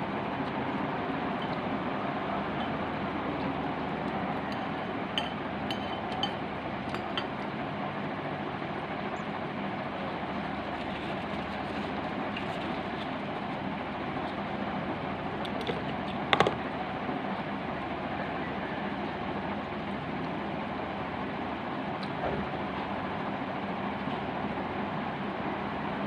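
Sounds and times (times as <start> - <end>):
metal spoon clinking on glass bowl: 4.5 - 6.4.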